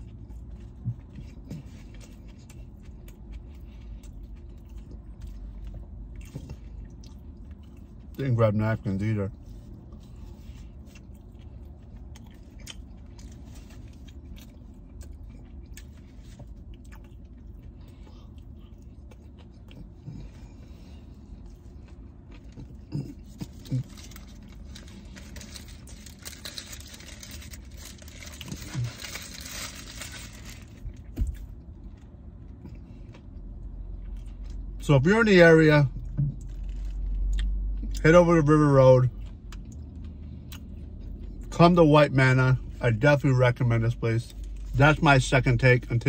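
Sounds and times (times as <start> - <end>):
chewing food: 0.0 - 8.2, 9.4 - 34.8, 39.1 - 41.5
low hum inside a car: 0.0 - 46.0
wax paper wrapper crinkling: 23.4 - 31.0.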